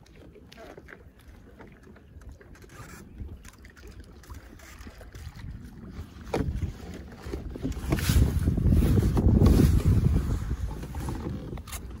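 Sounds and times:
water splashing against kayak: 0.0s - 12.0s
wind buffeting microphone: 4.3s - 12.0s.

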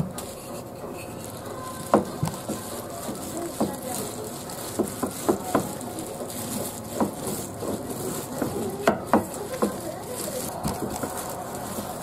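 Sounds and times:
rustle of dough and plastic wrap: 0.0s - 12.0s.

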